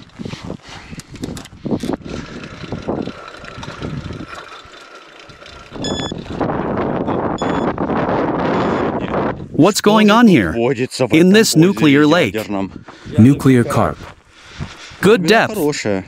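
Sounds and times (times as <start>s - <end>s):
vehicle rattling on dirt track: 0.9s - 8.4s.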